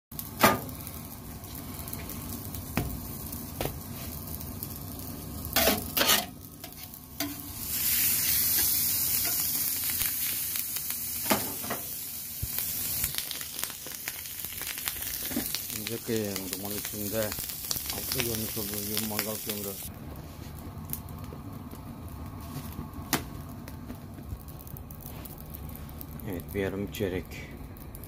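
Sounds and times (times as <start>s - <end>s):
meat sizzling on a griddle: 0.2s - 19.9s.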